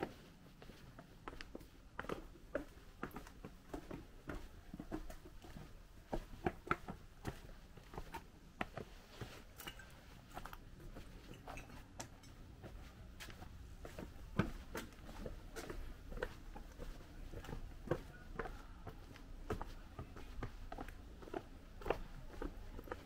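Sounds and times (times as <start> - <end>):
footsteps on uneven footpath: 0.0 - 23.0.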